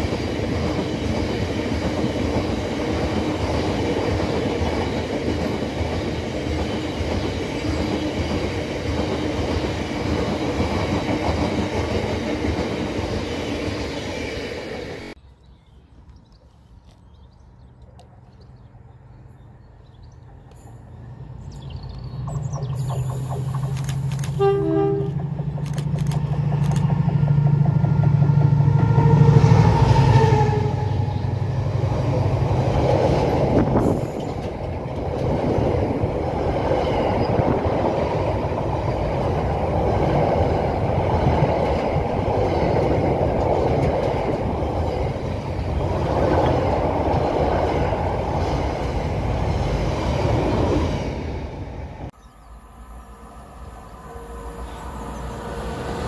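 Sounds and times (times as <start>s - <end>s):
train wagons rumbling over rails: 0.0s - 15.2s, 19.4s - 52.2s
locomotive running hum: 20.3s - 56.0s
train horn: 24.2s - 25.4s, 28.5s - 31.6s, 52.6s - 56.0s.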